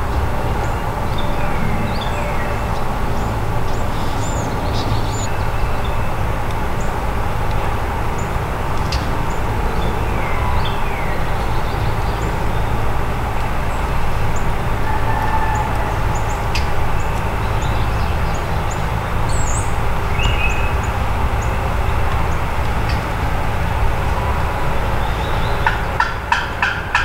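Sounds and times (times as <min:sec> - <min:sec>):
small birds chirping: 0:00.0 - 0:27.0
steady low rumble: 0:00.0 - 0:27.0.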